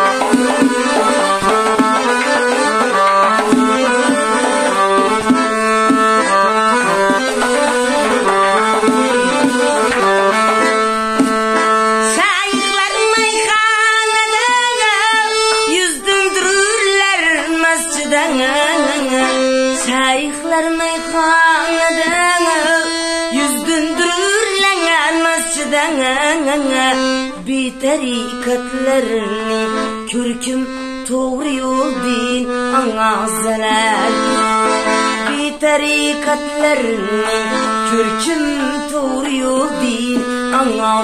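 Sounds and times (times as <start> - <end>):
accordion playing chords: 0.0 - 41.0
woman singing wordlessly: 12.0 - 34.5, 35.2 - 41.0.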